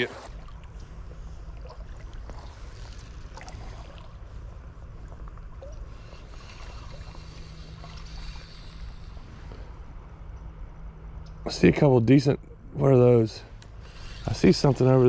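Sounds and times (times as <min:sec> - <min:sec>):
water sloshing and trickling: 0:00.0 - 0:10.5
steady low rumble: 0:00.0 - 0:15.0.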